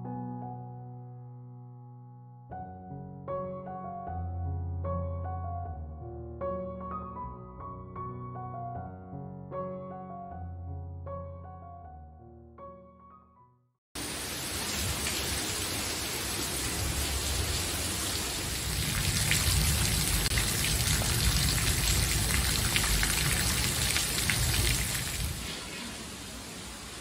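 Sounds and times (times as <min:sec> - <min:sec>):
heavy rain on a paved patio: 0:14.0 - 0:27.0.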